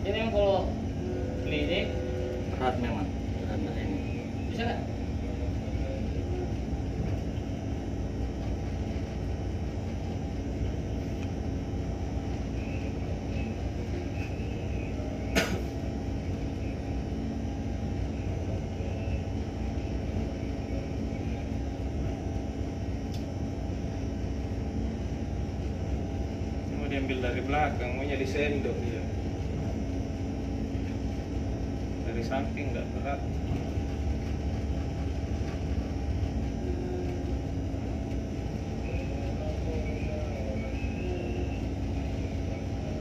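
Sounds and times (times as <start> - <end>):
faint hum of tones: 0.0 - 43.0
vessel engine drone: 0.0 - 43.0.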